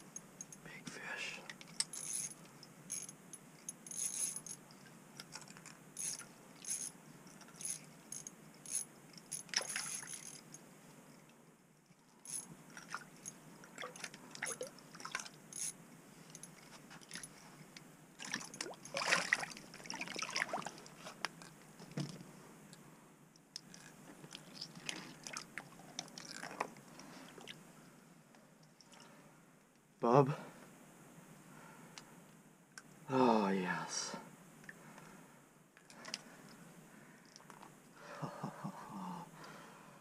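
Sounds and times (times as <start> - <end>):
water splashing: 18.2 - 20.9
soft clicks and rustles: 35.8 - 38.0.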